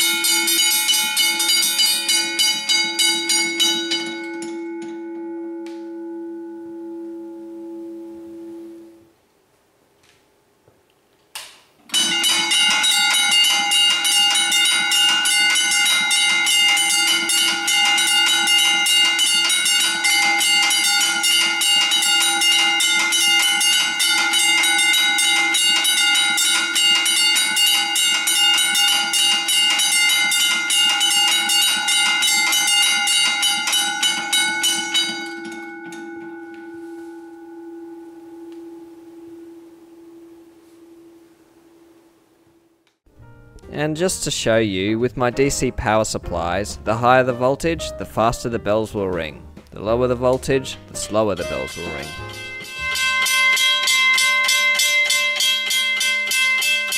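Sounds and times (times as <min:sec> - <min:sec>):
level crossing bells clanging: 0:00.0 - 0:06.3, 0:11.9 - 0:41.9, 0:49.8 - 0:56.9.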